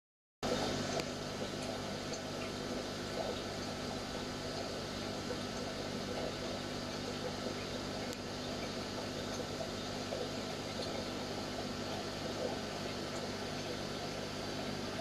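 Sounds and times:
aquarium pump humming: 0.4 - 15.0
watery trickle: 0.4 - 15.0.

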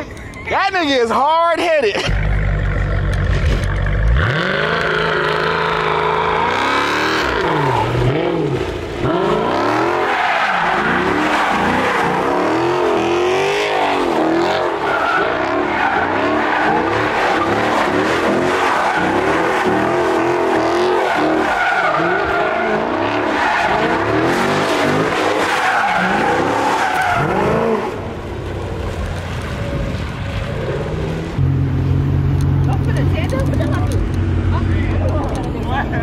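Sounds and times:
car engine revving: 2.0 - 36.0
tyres squealing: 13.7 - 27.9.

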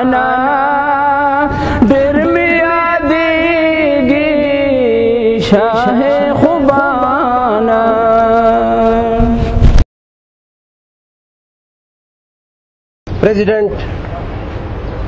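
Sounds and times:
man singing devotional verse: 0.0 - 9.8.

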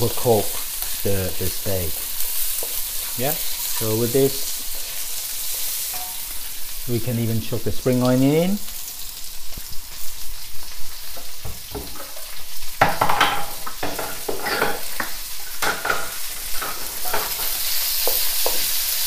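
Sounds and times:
vegetables sizzling in oil: 0.0 - 19.0
wooden spatula scraping wok: 13.3 - 18.7.

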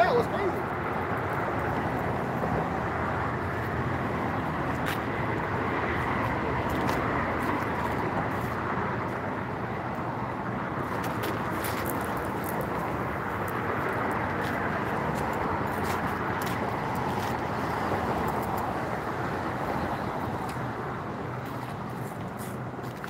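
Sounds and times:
road traffic rushing: 0.0 - 23.0.

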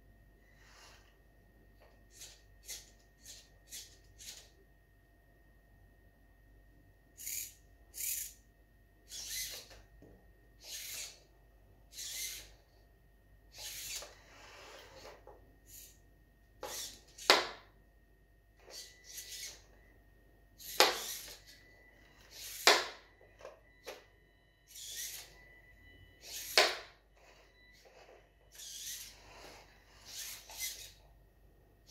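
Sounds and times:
robot arm motor whirring: 2.1 - 4.5, 7.2 - 8.4, 9.1 - 9.8, 10.6 - 11.3, 11.9 - 12.6, 13.5 - 16.0, 16.6 - 17.6, 18.6 - 19.8, 20.6 - 23.0, 24.7 - 25.4, 26.2 - 31.1.

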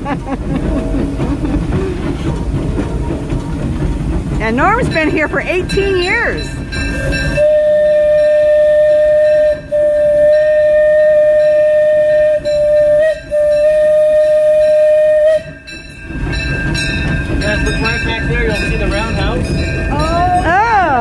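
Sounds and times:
train rolling rumble: 0.0 - 21.0
steam locomotive whistle blast: 6.9 - 15.7.

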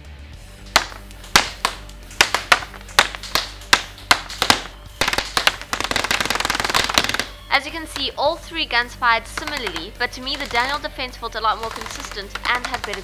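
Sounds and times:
faint background music: 0.0 - 13.0
pellets hitting paper targets: 0.6 - 13.0
airsoft gun shots: 0.8 - 8.1.

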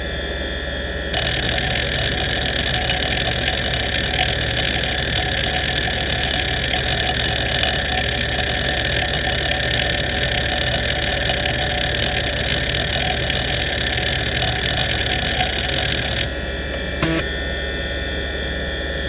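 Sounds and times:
spinning platter tones: 1.1 - 16.3
hard drive head chatter: 1.1 - 17.3.

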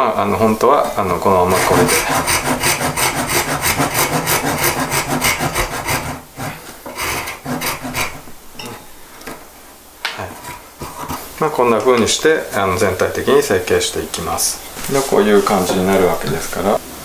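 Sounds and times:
hand saw cutting wood: 1.4 - 8.3.

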